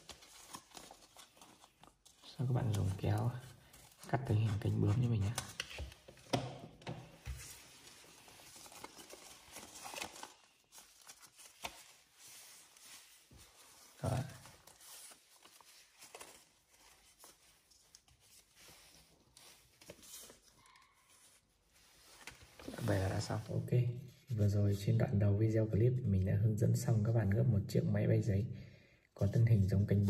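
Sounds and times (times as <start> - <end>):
paper rustling and crinkling: 0.0 - 6.3, 7.1 - 23.5.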